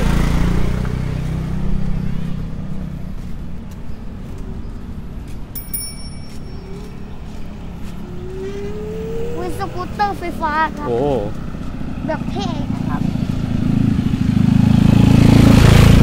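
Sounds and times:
vehicle engine passing by: 0.0s - 5.3s, 6.6s - 16.0s
traffic noise: 0.0s - 16.0s.

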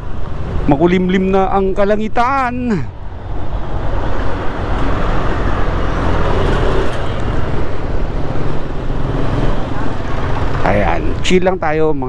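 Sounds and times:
road and wind noise: 0.0s - 12.0s.

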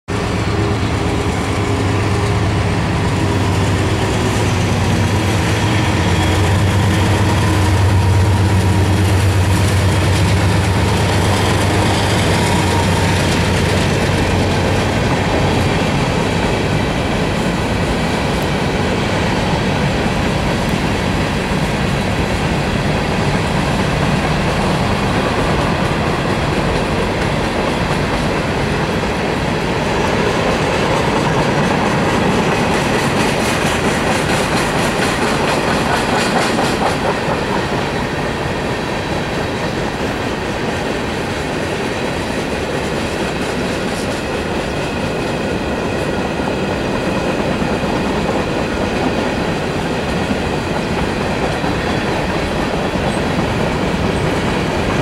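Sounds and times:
locomotive engines droning: 0.1s - 42.7s
train cars rumbling on rails: 0.1s - 55.0s.

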